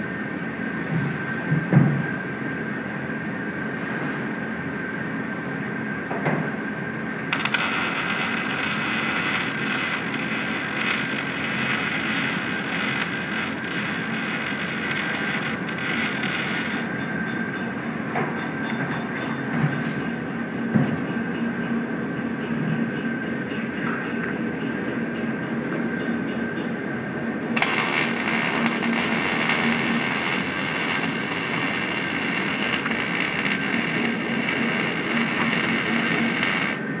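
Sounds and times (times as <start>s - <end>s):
welder arc crackling: 7.3s - 16.9s, 27.6s - 36.8s.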